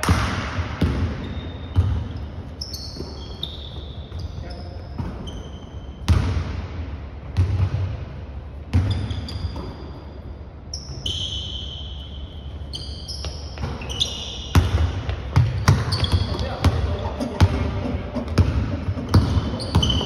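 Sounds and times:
basketball bouncing on wooden floor: 0:00.8 - 0:02.2, 0:14.6 - 0:20.0
sneakers squeaking: 0:00.8 - 0:06.4, 0:08.6 - 0:20.0.

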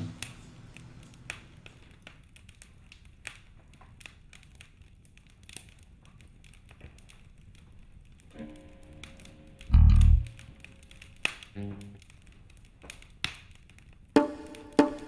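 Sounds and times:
steady low hum: 0:09.4 - 0:10.8.

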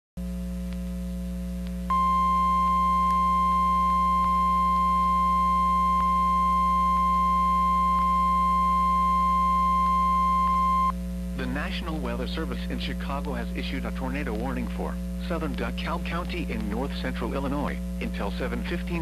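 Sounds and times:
low receiver hum: 0:00.2 - 0:19.0
steady high alarm tone: 0:01.9 - 0:10.9.

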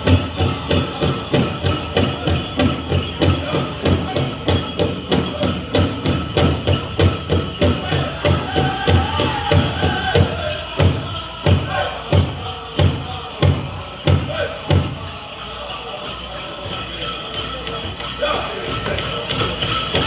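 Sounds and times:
big drum beating: 0:00.0 - 0:15.0
voices singing: 0:00.0 - 0:20.0.

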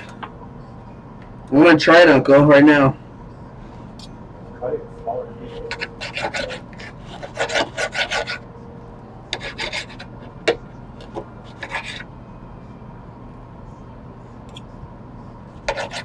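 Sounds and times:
knife sawing through steak: 0:05.7 - 0:08.4.

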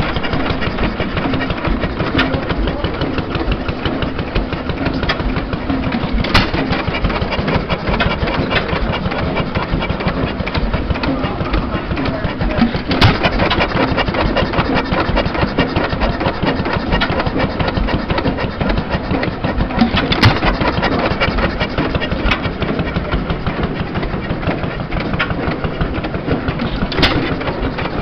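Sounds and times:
stationary engine clattering: 0:00.0 - 0:28.0
engine bang: 0:06.0 - 0:07.0, 0:12.5 - 0:13.5.

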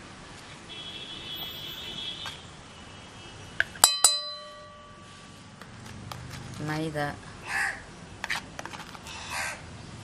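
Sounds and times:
metal spoon clinking on steel bowl: 0:03.8 - 0:05.1
bowl ringing: 0:03.8 - 0:05.3.

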